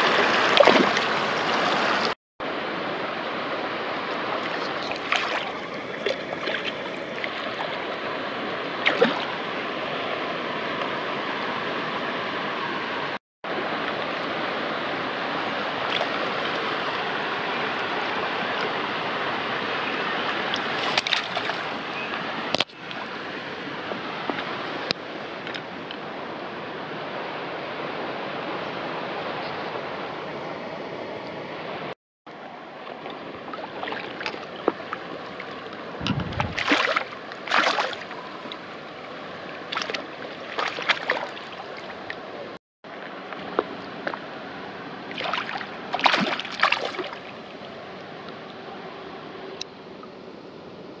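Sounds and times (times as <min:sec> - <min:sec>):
splashing in shallow water: 0:00.0 - 0:02.2, 0:04.2 - 0:09.6, 0:15.7 - 0:18.8, 0:20.2 - 0:23.3, 0:32.9 - 0:44.4, 0:45.0 - 0:47.8
river flowing over stones: 0:00.0 - 0:30.0, 0:32.4 - 0:49.3.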